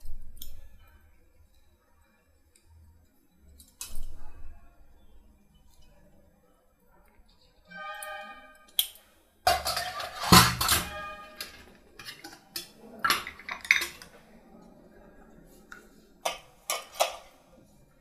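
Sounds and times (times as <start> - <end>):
utensils knocking on steel bowl: 9.5 - 14.0
steel kitchenware clinking: 9.5 - 14.2, 16.2 - 17.4.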